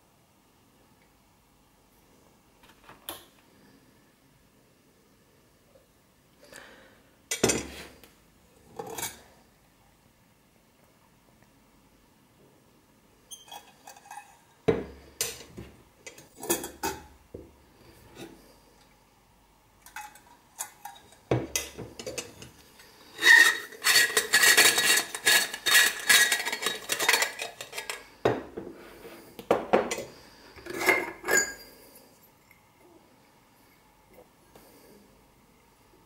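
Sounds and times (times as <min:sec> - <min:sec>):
metallic scraping: 0:19.9 - 0:28.1.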